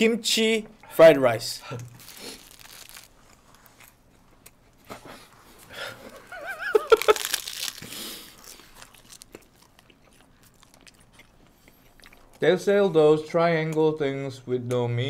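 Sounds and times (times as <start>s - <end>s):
plastic wrappers crinkling and tearing: 1.9s - 4.0s, 6.2s - 11.0s.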